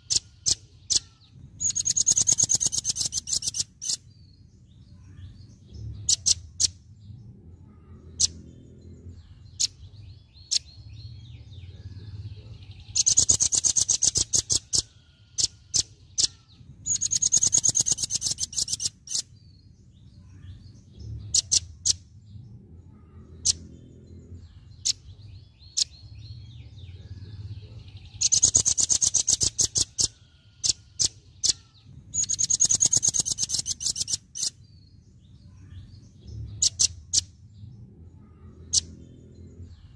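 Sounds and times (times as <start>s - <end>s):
bird singing fast high trills: 0.0s - 4.2s, 12.9s - 19.7s, 28.0s - 35.8s
faint low hum: 4.1s - 13.1s, 18.4s - 28.6s, 34.6s - 39.9s.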